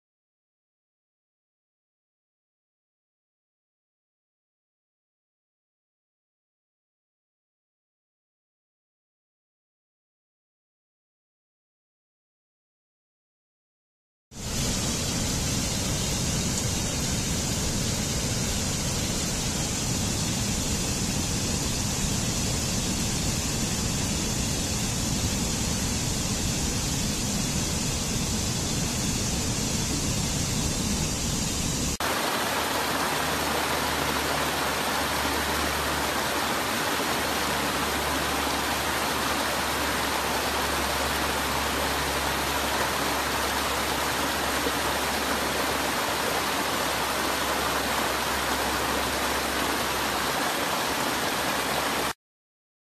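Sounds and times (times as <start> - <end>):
water rushing over small cascade: 14.4 - 52.2
stream rushing over boulders: 29.7 - 52.2.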